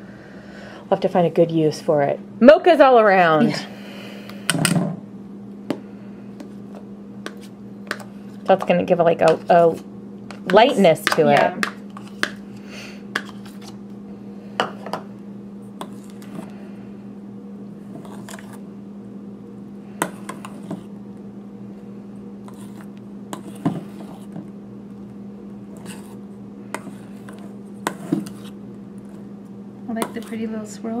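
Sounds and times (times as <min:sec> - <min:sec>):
steady low hum: 0:00.0 - 0:31.0
utensil scraping metal bowl: 0:22.4 - 0:24.4, 0:25.7 - 0:26.2, 0:26.8 - 0:28.6, 0:29.9 - 0:30.5.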